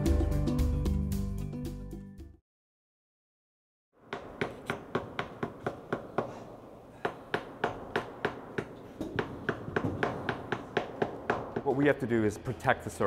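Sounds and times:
small hammer tapping tacks: 0:07.0 - 0:11.8.

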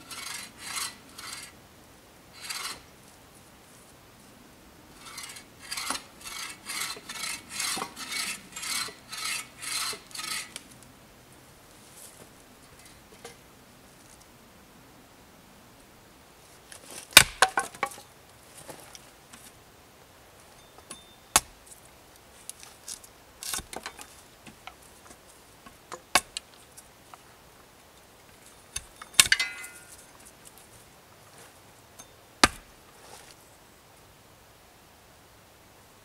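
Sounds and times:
metallic ring: 0:28.8 - 0:30.1.

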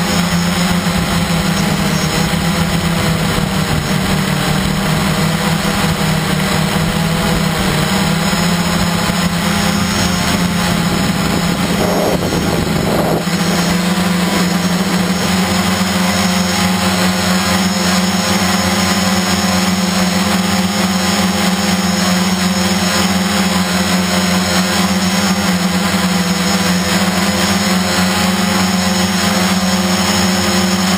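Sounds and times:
multicopter motors humming: 0:00.0 - 0:30.9
wind noise rush: 0:00.8 - 0:16.1.

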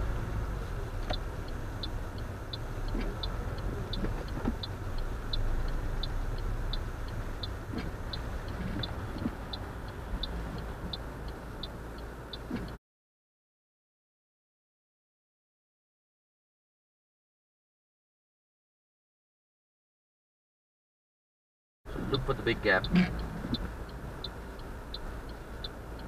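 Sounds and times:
car engine and road drone: 0:00.0 - 0:12.8, 0:21.9 - 0:26.0
turn signal ticking: 0:00.0 - 0:12.8, 0:21.9 - 0:26.0.

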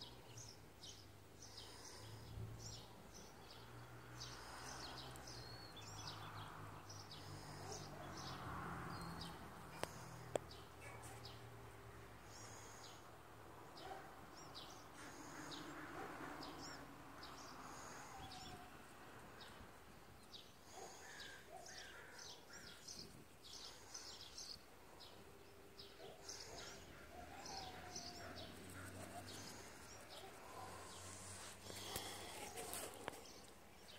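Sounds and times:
birds chirping: 0:13.7 - 0:33.9.

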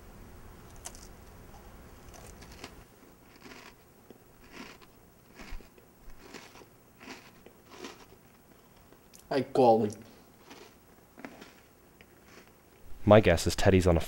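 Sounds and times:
person chewing crunchy food: 0:00.6 - 0:09.3, 0:10.4 - 0:12.8.

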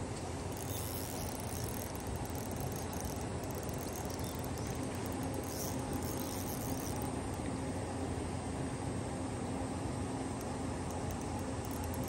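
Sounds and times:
insects chirping: 0:00.2 - 0:07.4, 0:10.8 - 0:12.0.

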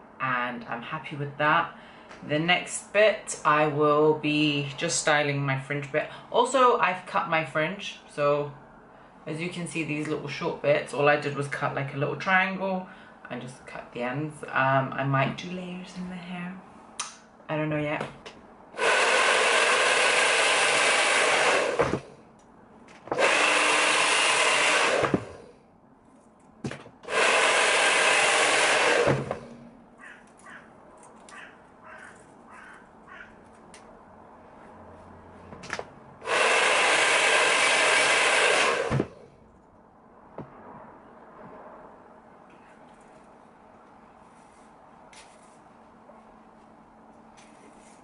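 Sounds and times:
hair dryer blowing: 0:18.8 - 0:22.1, 0:23.1 - 0:25.5, 0:27.0 - 0:29.6, 0:36.2 - 0:39.2.

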